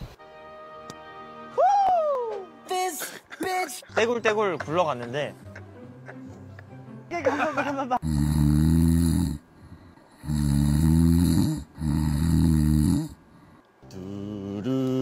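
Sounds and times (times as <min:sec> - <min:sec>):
person snoring: 0:08.0 - 0:15.0.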